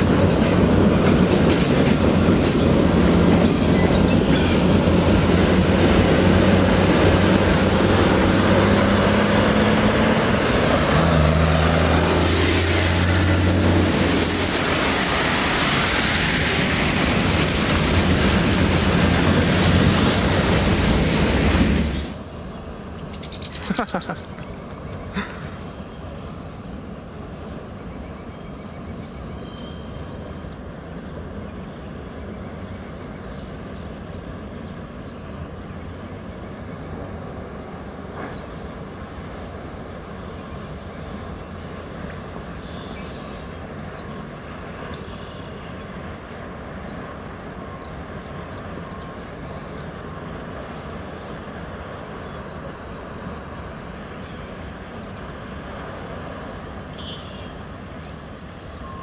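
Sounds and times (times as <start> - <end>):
tyres splashing water: 0.0 - 22.2
vehicles driving through floodwater: 3.4 - 59.0
rain: 4.9 - 22.2, 37.4 - 59.0.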